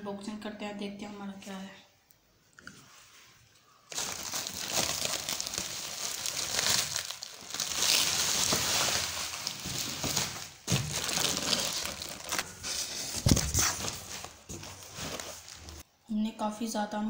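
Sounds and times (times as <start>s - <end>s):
plastic wrapping crinkling: 3.9s - 15.8s.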